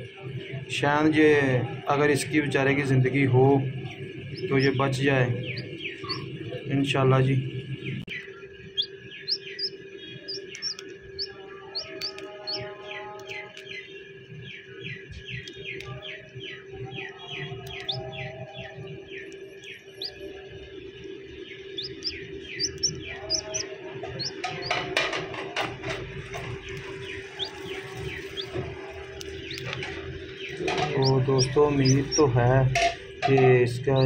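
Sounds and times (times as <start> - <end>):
chicks peeping: 2.0 - 34.0
eggshell crackling: 4.0 - 6.3, 8.2 - 13.8, 17.6 - 34.0.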